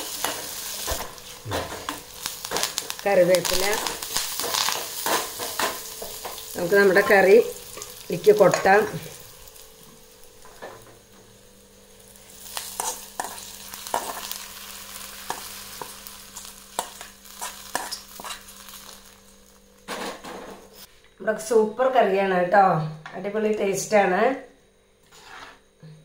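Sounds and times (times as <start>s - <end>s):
hot oil sizzling: 0.0s - 20.9s
metal spoon scraping and tapping pan: 16.8s - 18.4s.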